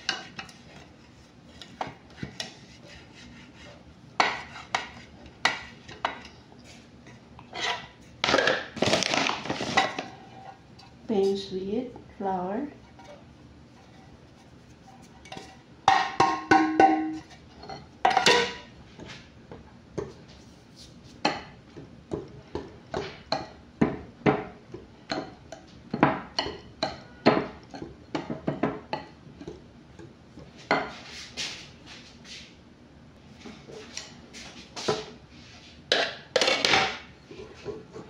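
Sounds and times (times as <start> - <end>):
metal loaf pan knocking and ringing: 15.9 - 17.3.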